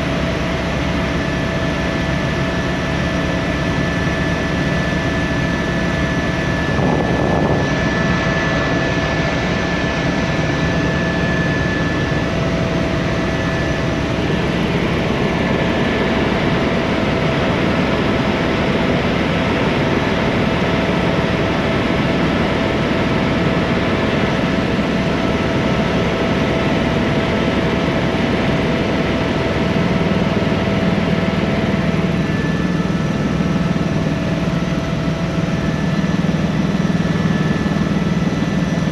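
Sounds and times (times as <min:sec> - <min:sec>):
helicopter turbine and rotor noise: 0:00.0 - 0:38.9.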